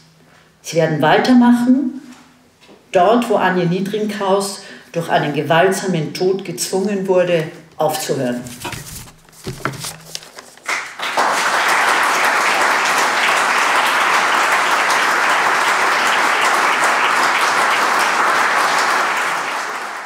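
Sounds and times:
audience applauding: 0:10.6 - 0:20.0.

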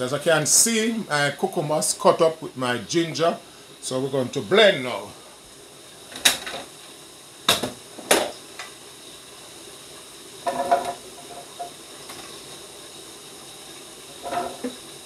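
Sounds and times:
faint hiss: 0:00.0 - 0:15.0.

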